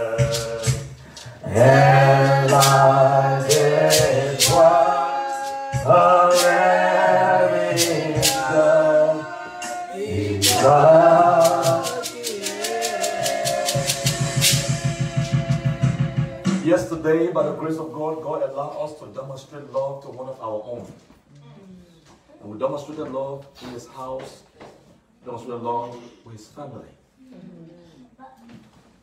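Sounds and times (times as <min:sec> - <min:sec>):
shaker rattling: 0:00.0 - 0:15.4
low instrumental beat: 0:00.0 - 0:17.0
congregation singing a hymn: 0:00.0 - 0:17.3.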